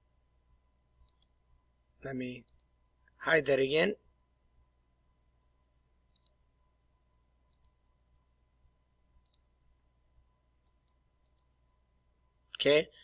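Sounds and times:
computer mouse clicks: 1.0s - 1.4s, 2.4s - 2.8s, 6.1s - 6.4s, 7.4s - 7.8s, 9.2s - 9.5s, 10.6s - 11.6s.

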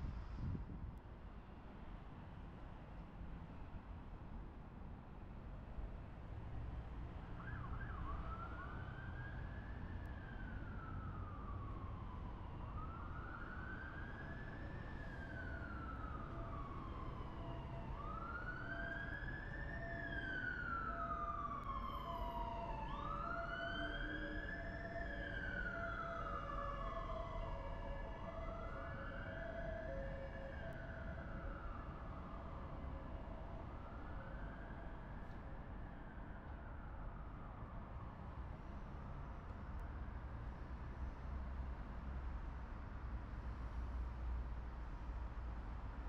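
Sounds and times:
city traffic rumble: 0.0s - 46.0s
siren wailing: 15.7s - 35.0s.

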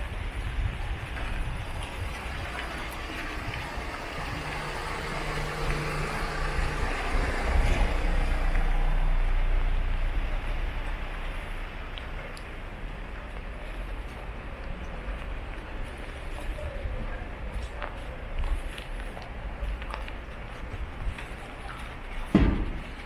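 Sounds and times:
rain hissing: 1.7s - 14.6s
vehicle engine running: 1.8s - 16.4s.

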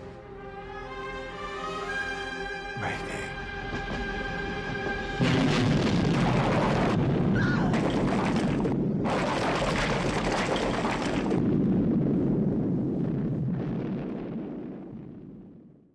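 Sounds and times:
music: 0.0s - 6.7s
large explosion blast: 5.2s - 15.8s.

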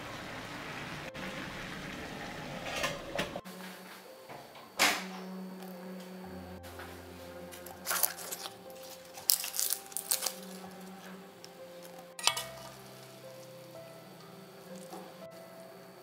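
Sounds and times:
soft background music: 0.9s - 16.0s
leaf crinkling and rustling: 6.8s - 15.3s.

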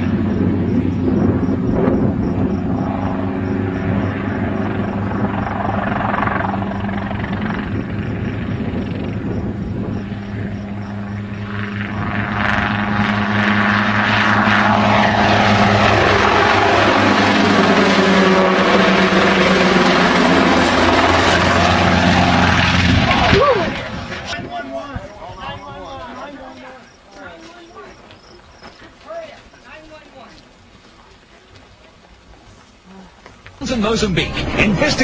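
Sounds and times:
helicopter in flight: 0.0s - 24.4s.

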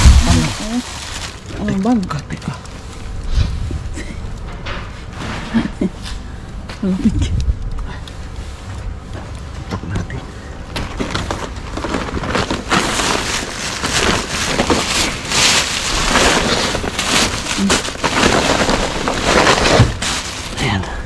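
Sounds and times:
plastic bags crackling: 0.0s - 4.5s, 10.4s - 21.0s.

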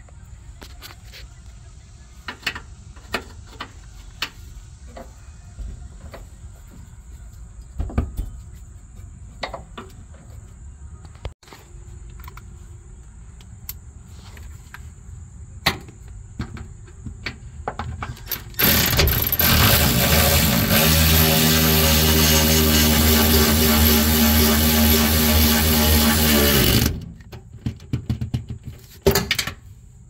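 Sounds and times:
hand ratchet clicking: 18.6s - 26.9s.

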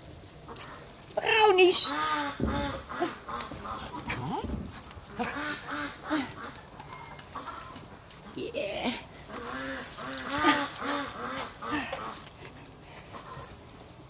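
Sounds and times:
low thumps: 2.4s - 5.0s.

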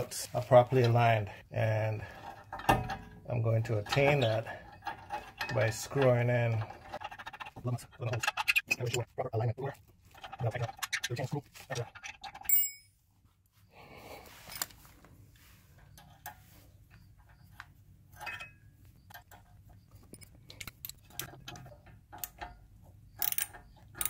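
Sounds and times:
metal bolts clicking and rattling: 1.8s - 9.1s, 10.1s - 12.9s, 15.8s - 24.0s
ringing metal clink: 12.4s - 12.9s, 18.2s - 18.7s.

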